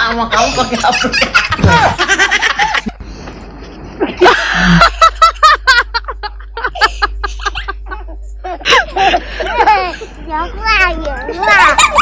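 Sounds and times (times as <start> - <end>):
people laughing: 0.1 - 3.0, 3.6 - 10.1, 11.2 - 12.0
voices: 7.9 - 12.0.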